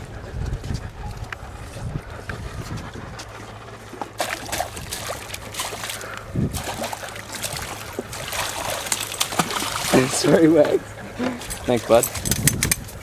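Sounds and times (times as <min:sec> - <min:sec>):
wind rumble on microphone: 0:00.0 - 0:10.2, 0:11.3 - 0:13.0
fish splashing at water surface: 0:04.0 - 0:10.6.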